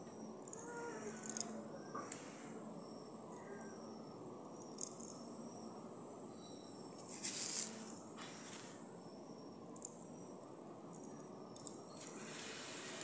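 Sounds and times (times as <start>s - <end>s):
insect chirring: 0.2s - 2.0s, 2.8s - 8.0s.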